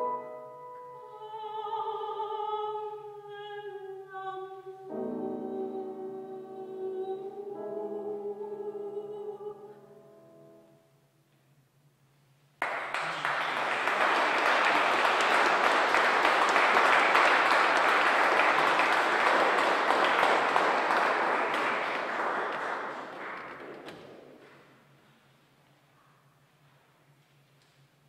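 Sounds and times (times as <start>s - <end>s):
audience applauding: 12.6s - 24.5s.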